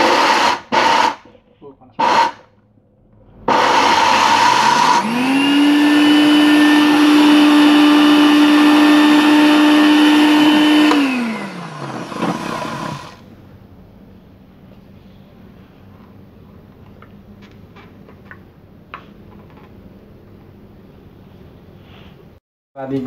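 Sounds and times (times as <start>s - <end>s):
electric blender grinding: 0.0s - 1.2s, 2.0s - 2.4s, 3.4s - 13.2s.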